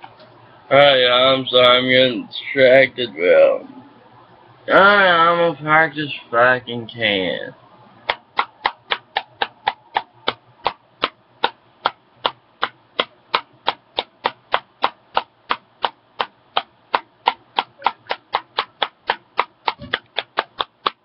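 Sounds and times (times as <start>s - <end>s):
tin tapping against fingers: 8.1s - 10.4s.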